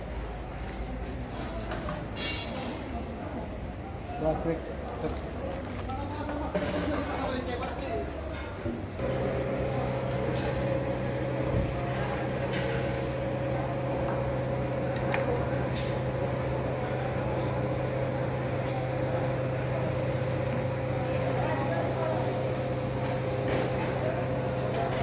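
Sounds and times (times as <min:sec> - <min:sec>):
electric fan humming: 0:09.0 - 0:25.0.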